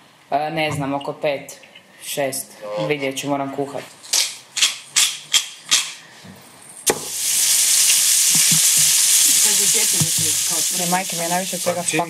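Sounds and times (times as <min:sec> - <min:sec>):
food sizzling in hot pan: 0:06.9 - 0:12.0.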